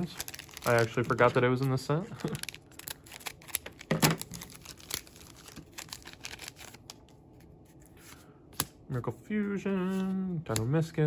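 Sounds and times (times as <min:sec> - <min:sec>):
foil wrapper crinkling: 0:00.0 - 0:07.1
scissors snipping foil wrapper: 0:02.2 - 0:07.0.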